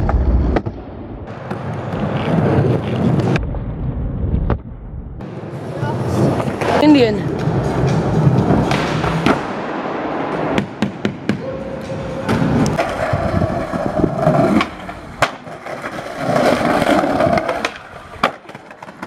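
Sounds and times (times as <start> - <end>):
skateboards rolling and scraping: 0.0 - 4.6, 5.2 - 19.0
skateboard clacks: 12.3 - 19.0.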